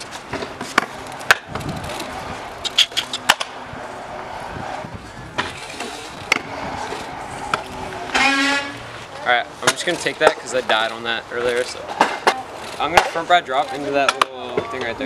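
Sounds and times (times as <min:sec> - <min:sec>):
scooter wheels rolling on concrete: 0:00.0 - 0:15.0
scooter deck clacking on ground: 0:09.6 - 0:15.0.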